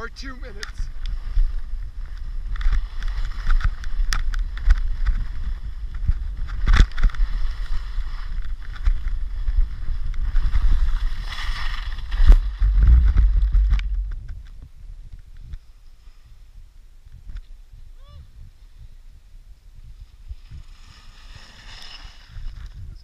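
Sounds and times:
skis scraping over snow: 0:00.0 - 0:14.4, 0:19.9 - 0:23.0
wind noise: 0:00.0 - 0:23.0.

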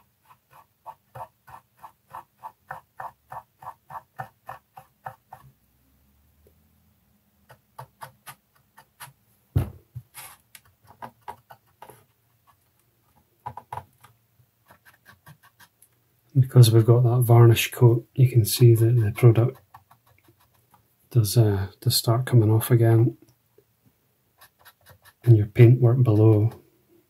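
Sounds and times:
single thump: 0:09.5 - 0:10.1.

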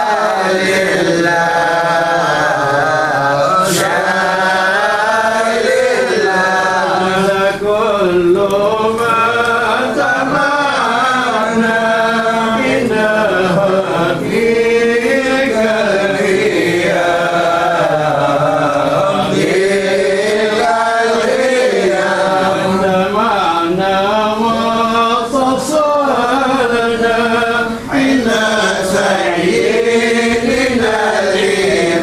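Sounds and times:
men chanting devotional verses: 0:00.0 - 0:32.0.

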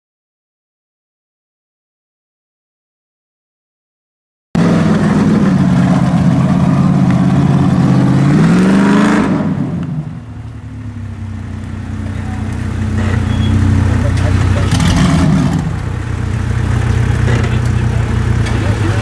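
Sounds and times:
off-road vehicle engine under load: 0:04.6 - 0:19.0.

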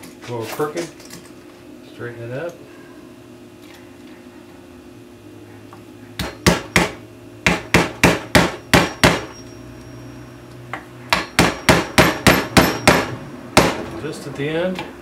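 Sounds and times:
hammer tapping a nail: 0:06.2 - 0:09.3, 0:11.1 - 0:13.8.

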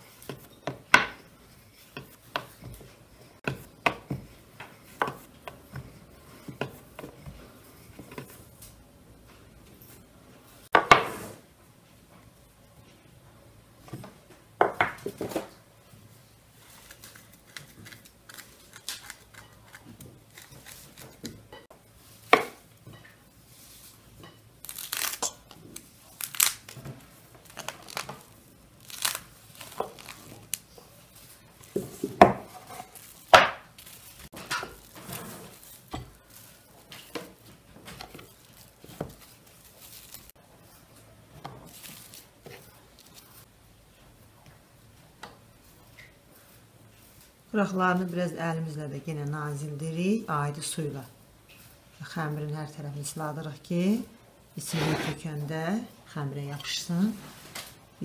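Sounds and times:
cling film crinkling: 0:24.6 - 0:31.4, 0:38.2 - 0:40.4.

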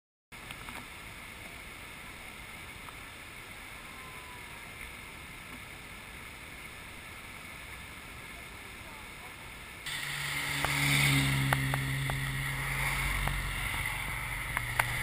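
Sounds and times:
distant waterfall rushing: 0:00.4 - 0:15.0.

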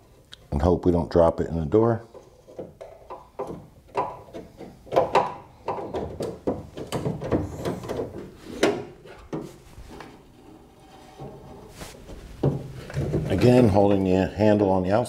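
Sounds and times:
clinks and knocks inside steel door: 0:02.6 - 0:09.5.

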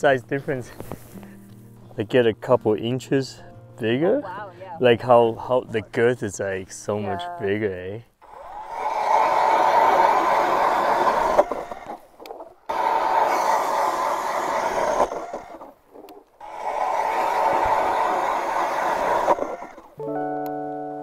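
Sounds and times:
power ice auger grinding: 0:08.2 - 0:12.1, 0:12.7 - 0:20.0.

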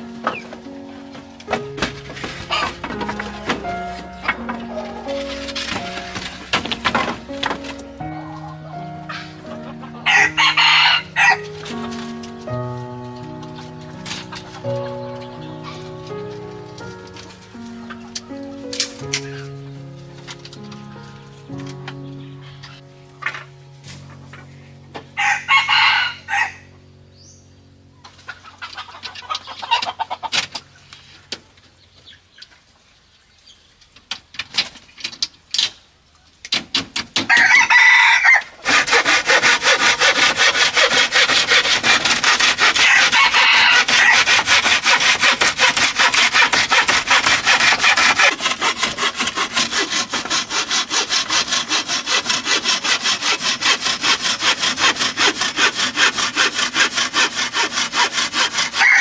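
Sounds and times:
hand saw cutting bamboo: 0:01.4 - 0:08.0, 0:10.0 - 0:12.6, 0:13.6 - 0:14.9, 0:36.5 - 0:59.0
rooster crowing: 0:10.0 - 0:11.4, 0:25.2 - 0:26.7, 0:37.3 - 0:38.6, 0:42.8 - 0:44.2, 0:58.8 - 0:59.0.

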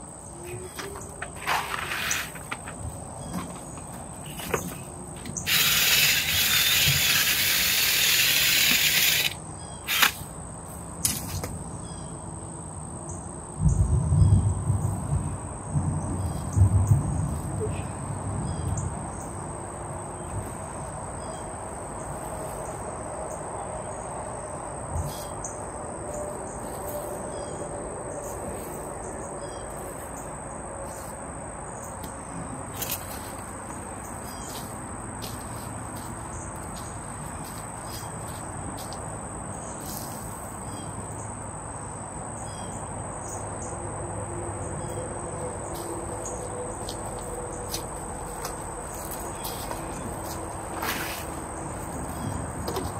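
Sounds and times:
insects chirping: 0:00.0 - 0:52.9.

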